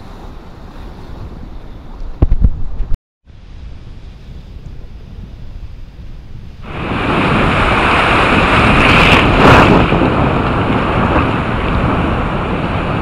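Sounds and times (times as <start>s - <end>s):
wind blowing on microphone: 0.0s - 13.0s
choppy sea water: 6.6s - 13.0s.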